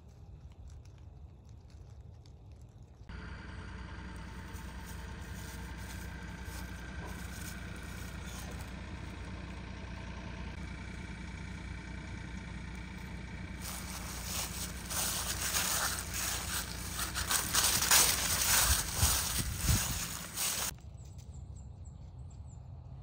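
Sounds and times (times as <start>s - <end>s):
excavator diesel engine running: 3.1s - 20.7s.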